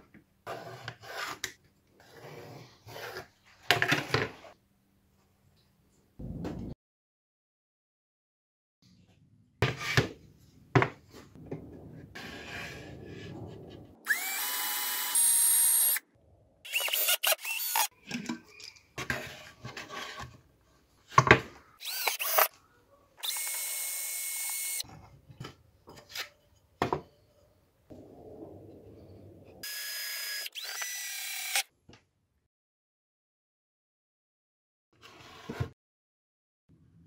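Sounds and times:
power drill on plywood: 14.0s - 16.0s, 16.7s - 17.9s, 21.8s - 22.5s, 23.2s - 24.8s, 29.6s - 31.6s.

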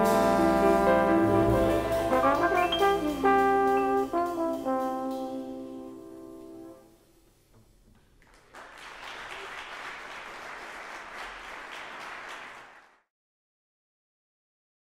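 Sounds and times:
audience applause: 1.2s - 3.2s, 8.0s - 13.0s.

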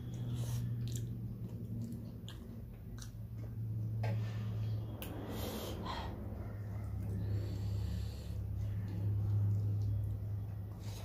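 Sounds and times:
noisy breaths: 0.0s - 1.3s, 3.8s - 11.0s
steady low hum: 0.0s - 11.0s.

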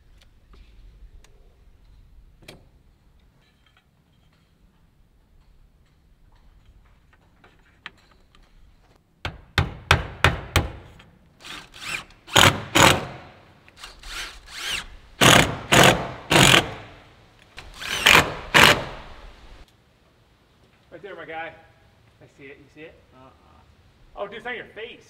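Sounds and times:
cordless drill bursts: 13.8s - 16.8s, 17.6s - 18.9s.

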